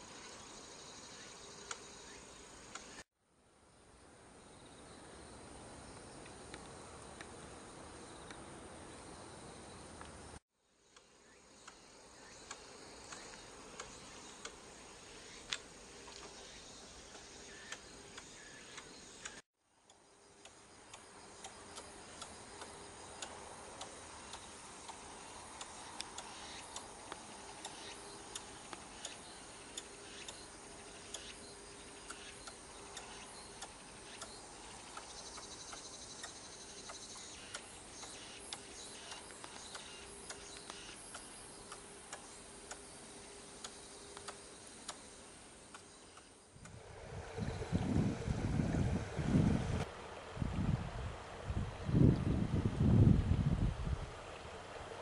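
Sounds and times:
faint steady hum: 0.0 - 55.0
sharp irregular clicks: 17.1 - 31.4, 32.0 - 42.9, 43.6 - 45.1.

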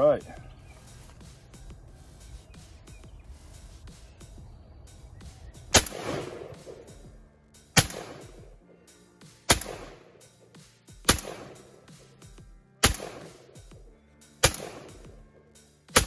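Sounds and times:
background music: 0.0 - 16.0
shotgun blasts with echo: 5.7 - 8.6, 9.5 - 10.2, 11.0 - 12.0, 12.8 - 13.8, 14.4 - 15.2.

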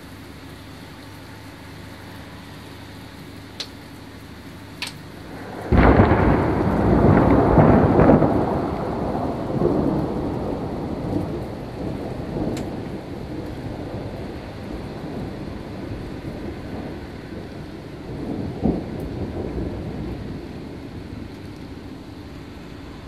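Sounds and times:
steady rain: 0.0 - 23.0
thunder clap rolling: 5.3 - 22.2.

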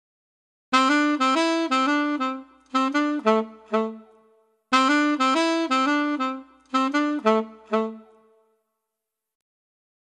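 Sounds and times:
looping wind instrument melody: 0.7 - 8.5.

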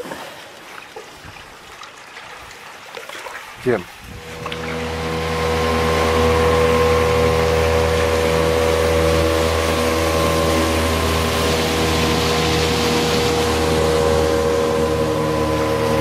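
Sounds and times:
water rushing from wake: 0.0 - 16.0
outboard motor running: 3.6 - 16.0.

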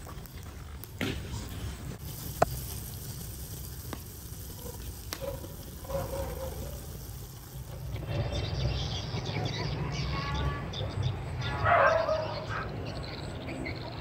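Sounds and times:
burning wood snapping: 0.0 - 8.4
pot of liquid boiling: 0.0 - 10.0.

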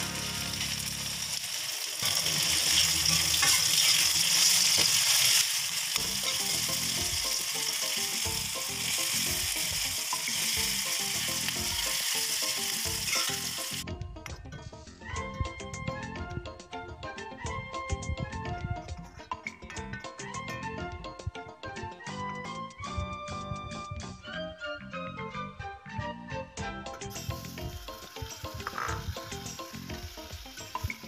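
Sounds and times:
onions sizzling in hot oil: 0.0 - 13.8, 27.1 - 31.0
music: 0.0 - 31.0
metal ladle scraping wok: 2.0 - 5.5, 12.0 - 13.8, 28.5 - 29.3.

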